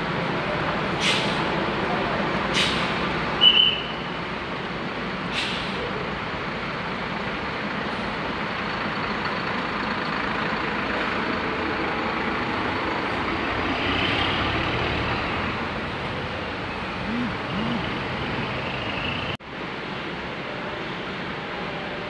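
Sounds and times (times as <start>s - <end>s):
diesel coach engine running: 4.1s - 19.4s.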